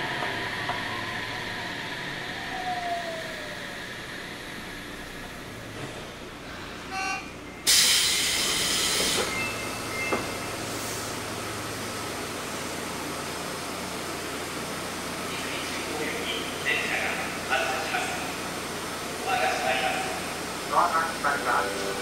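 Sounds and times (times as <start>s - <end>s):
subway car running noise: 0.0s - 22.0s
brief tone: 6.9s - 7.7s, 9.3s - 10.6s
loud hiss of air: 7.7s - 9.3s.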